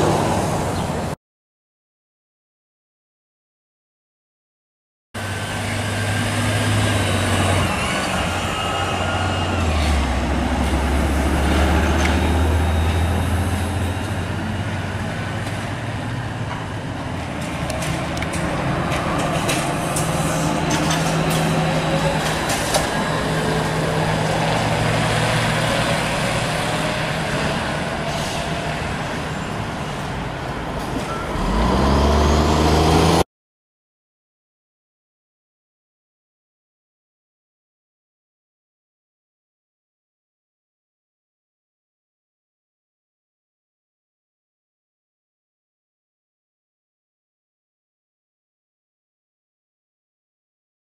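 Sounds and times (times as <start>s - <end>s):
heavy vehicles engine hum: 0.0s - 1.2s, 5.2s - 33.2s
vehicle pulling away: 5.2s - 30.4s, 31.1s - 33.3s.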